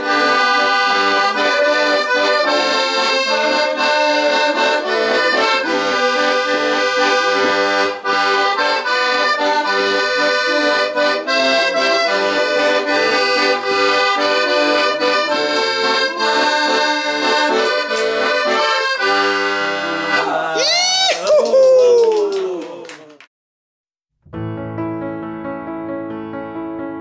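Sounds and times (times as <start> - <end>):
accordion playing: 0.0 - 20.3.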